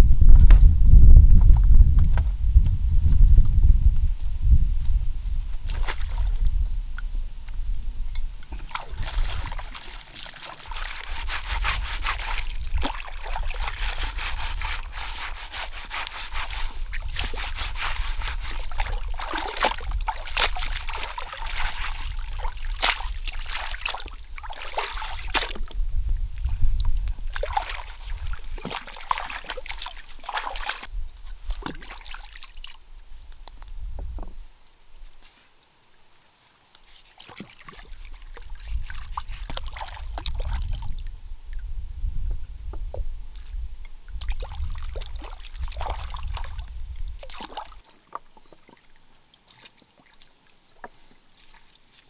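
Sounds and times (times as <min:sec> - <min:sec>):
water splashing and sloshing: 0:05.5 - 0:06.8, 0:07.4 - 0:34.4, 0:36.7 - 0:41.8, 0:42.8 - 0:52.0
rubbing strokes: 0:09.3 - 0:22.2.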